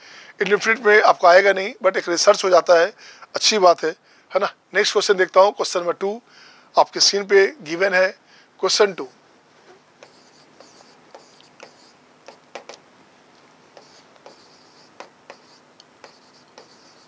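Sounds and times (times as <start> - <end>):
pen scratching on paper: 10.0 - 12.8, 13.8 - 17.0.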